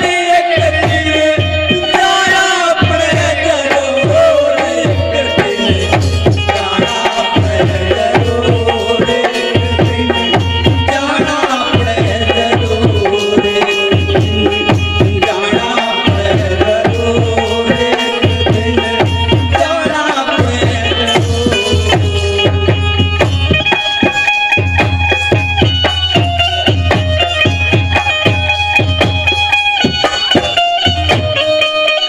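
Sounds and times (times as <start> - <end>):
hand drums: 0.0 - 32.0.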